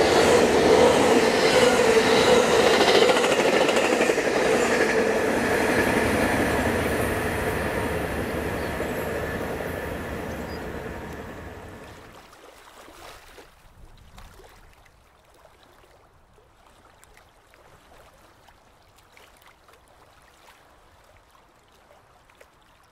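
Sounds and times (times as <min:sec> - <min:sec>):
freight train passing: 0:00.0 - 0:12.1.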